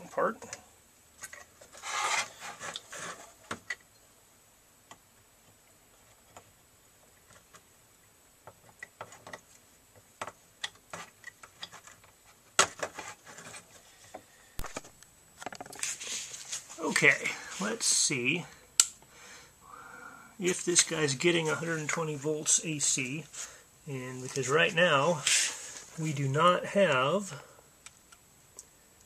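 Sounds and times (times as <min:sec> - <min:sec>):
small clicks taps and rustles: 0:04.8 - 0:15.9.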